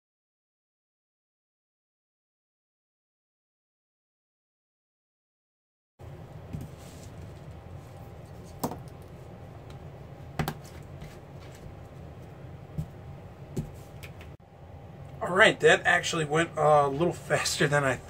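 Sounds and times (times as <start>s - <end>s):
steady low hum: 6.0s - 18.0s.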